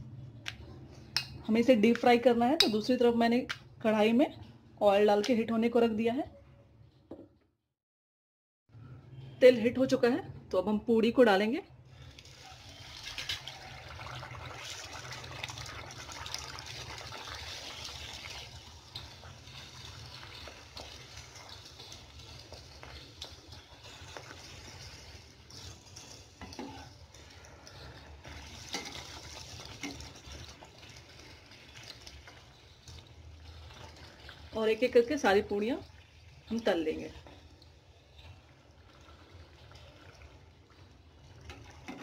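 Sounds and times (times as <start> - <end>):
dough sizzling in hot oil: 11.9 - 42.0.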